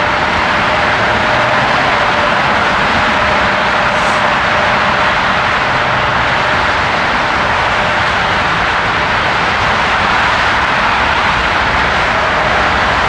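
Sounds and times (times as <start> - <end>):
highway traffic: 0.0 - 13.0
jet engines roaring: 0.0 - 13.0.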